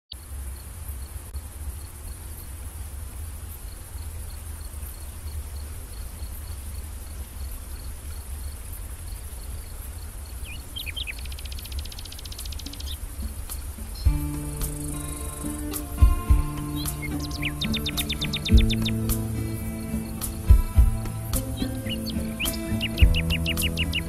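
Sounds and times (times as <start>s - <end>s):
insect chirping: 0.1s - 24.0s
insects buzzing: 0.1s - 24.0s
bird-like calls: 10.4s - 24.0s.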